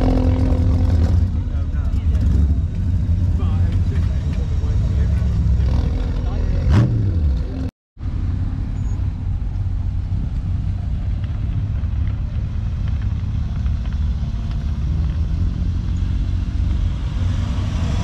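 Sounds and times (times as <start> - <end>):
car engine running at low revs: 0.0 - 18.0.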